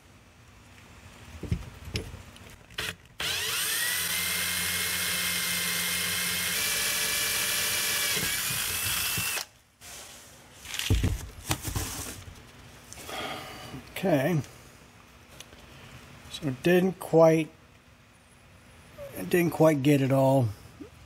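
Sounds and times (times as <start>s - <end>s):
cordless drill whining: 2.8s - 9.5s.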